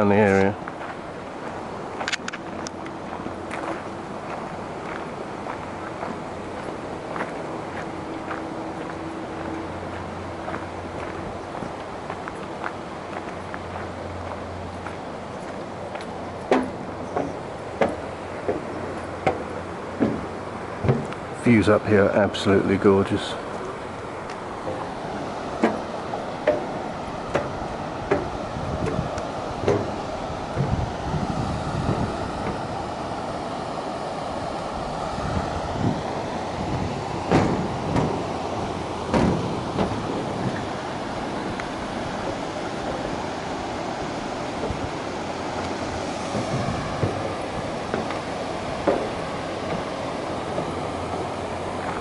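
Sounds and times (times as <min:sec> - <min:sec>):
footsteps on metal deck: 0:00.0 - 0:22.5, 0:23.2 - 0:52.0
water rushing over weir: 0:00.0 - 0:52.0
footsteps on gravel: 0:00.2 - 0:21.2.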